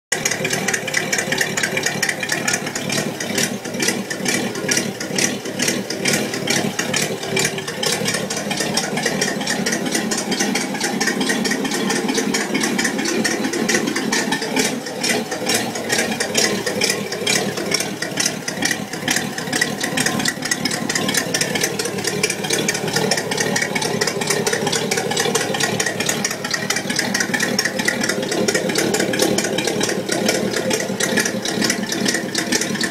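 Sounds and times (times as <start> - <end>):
car engine idling with ticking: 0.1 - 32.9.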